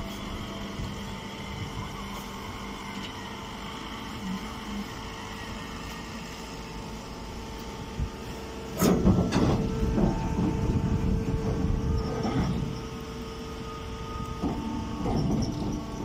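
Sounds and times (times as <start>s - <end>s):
baler motor humming: 0.0s - 16.0s
bale rumbling and scraping: 8.8s - 16.0s.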